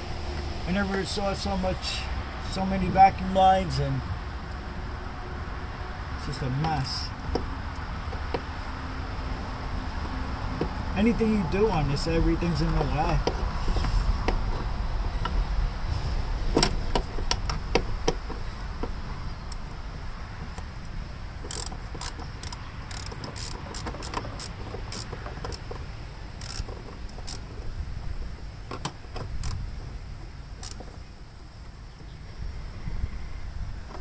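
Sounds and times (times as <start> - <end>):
steady low rumble: 0.0 - 22.9
hand ratchet clicking: 21.4 - 25.7, 26.4 - 27.4, 29.4 - 29.6, 30.6 - 30.9.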